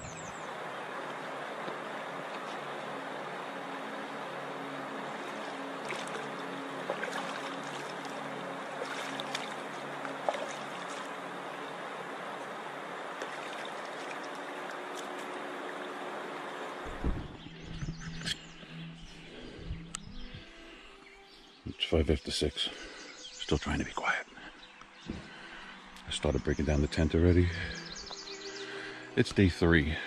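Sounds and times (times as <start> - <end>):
stream water rushing: 0.0 - 17.1.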